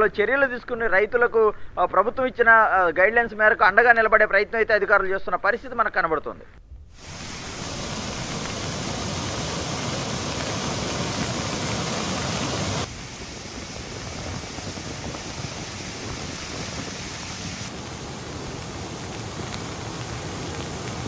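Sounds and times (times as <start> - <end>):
river rushing over weir: 7.0 - 21.0.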